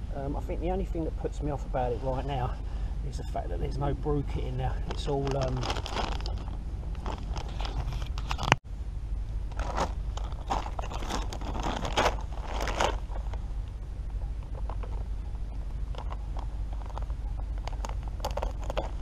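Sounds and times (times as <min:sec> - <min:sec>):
low rumble: 0:00.0 - 0:19.0
plastic bag scraping and crinkling: 0:04.6 - 0:08.6, 0:09.6 - 0:13.4.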